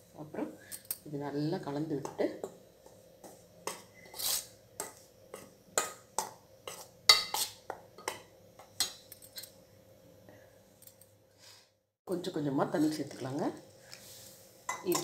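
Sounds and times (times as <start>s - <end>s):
spoon scraping steel bowl: 2.8s - 9.6s.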